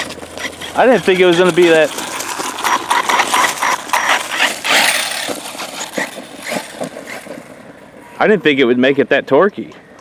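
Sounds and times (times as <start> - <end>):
tyres crackling through leaves: 0.0 - 8.8.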